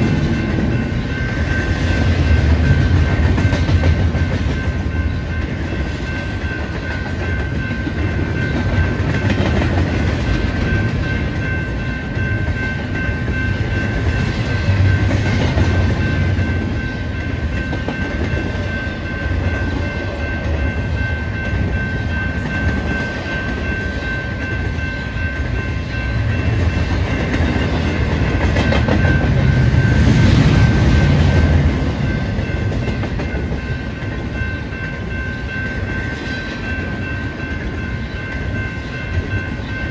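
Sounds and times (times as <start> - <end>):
freight train rumbling: 0.0 - 39.9
wheels clacking over rails: 26.2 - 34.4.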